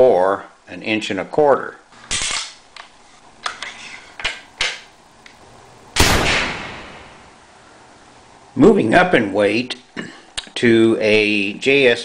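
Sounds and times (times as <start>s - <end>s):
gunshot bang: 6.0s - 7.4s.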